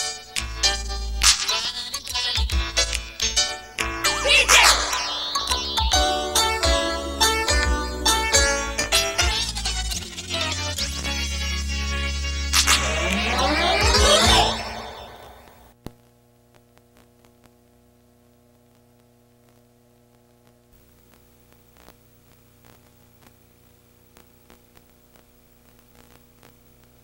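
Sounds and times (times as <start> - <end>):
tape hiss: 0.0 - 27.0
closing theme music: 3.8 - 9.4, 11.7 - 15.6
electrical mains hum: 12.6 - 27.0
faint crackles: 15.8 - 27.0.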